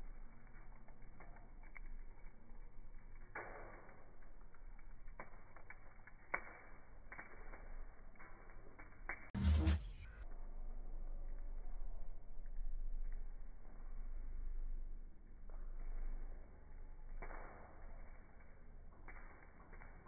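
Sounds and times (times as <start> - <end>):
charcoal crackling and popping: 0.0 - 9.8, 15.2 - 20.0
loud burst of noise: 9.4 - 10.1.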